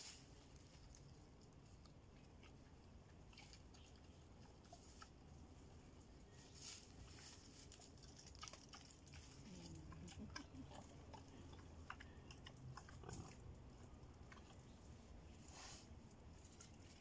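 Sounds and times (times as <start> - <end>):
boars crunching and chewing: 0.0 - 17.0
leaf litter crackling: 6.3 - 10.7.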